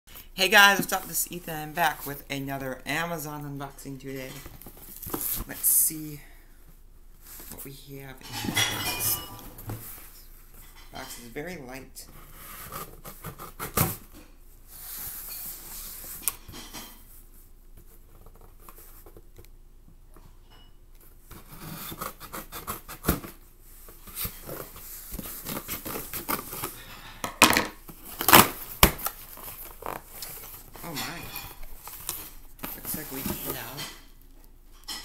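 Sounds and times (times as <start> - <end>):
cardboard tearing and rustling: 24.0 - 26.9, 27.9 - 33.6.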